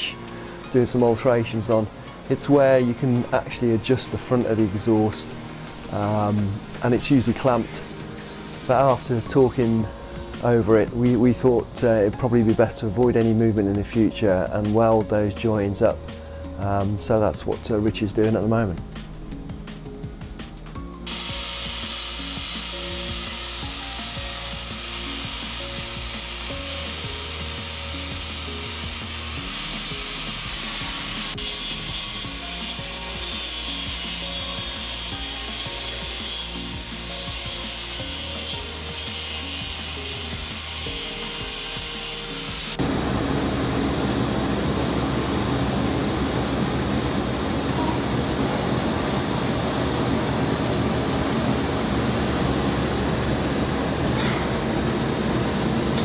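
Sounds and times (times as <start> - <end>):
welding buzzing hiss: 0.2 - 10.4, 21.0 - 56.0
angle grinder grinding steel: 21.1 - 43.2.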